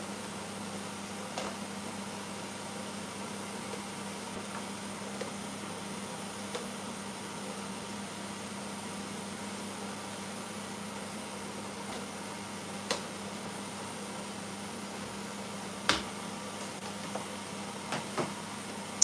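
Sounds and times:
kitchen hum and hiss: 0.0s - 19.0s.

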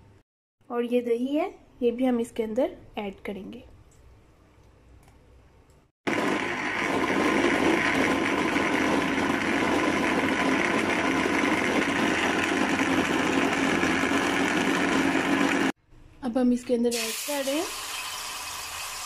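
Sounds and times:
blender running: 6.1s - 15.8s, 17.0s - 19.0s.

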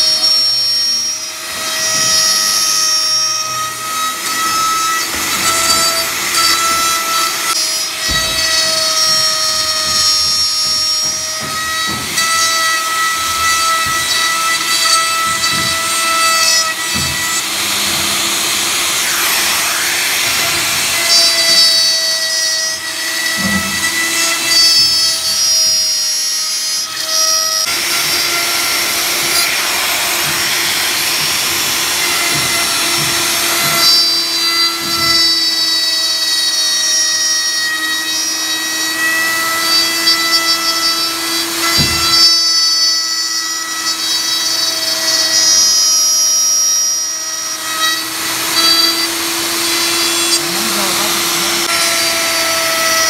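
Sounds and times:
electric router whining: 0.0s - 53.0s.

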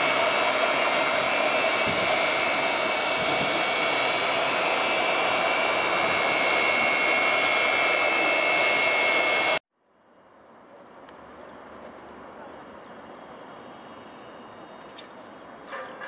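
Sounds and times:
jet engines whining: 0.0s - 9.6s.

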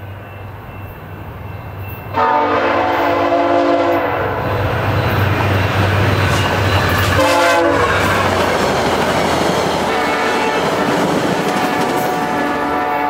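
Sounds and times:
diesel locomotive engine: 0.0s - 13.0s
train horn blast: 2.1s - 4.6s, 7.1s - 8.2s, 9.8s - 13.0s
train wheels clattering over rails: 4.6s - 12.8s.

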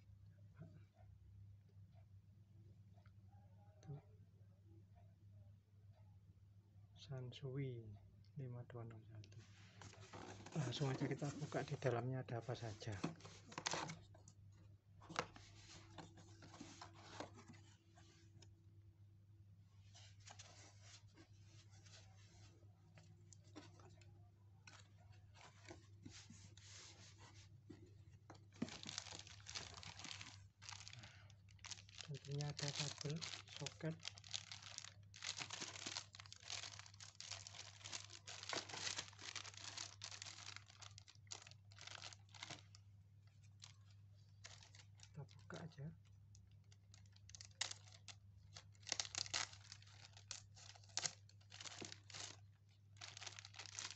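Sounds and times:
plastic bag crinkling: 28.5s - 45.4s, 46.6s - 53.9s.

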